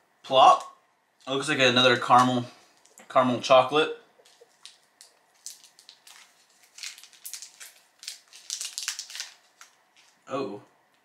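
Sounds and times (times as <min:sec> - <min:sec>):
plastic wrapper crinkling: 0:04.2 - 0:10.3.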